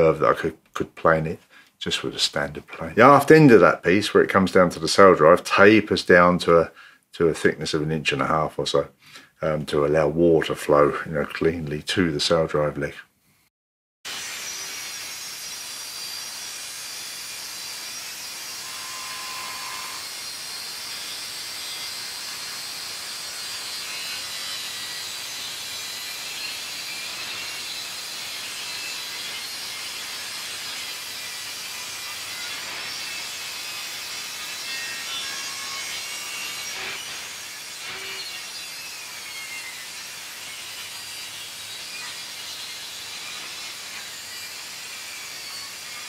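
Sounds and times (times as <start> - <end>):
table saw cutting wood: 2.3 - 3.8, 14.1 - 46.0.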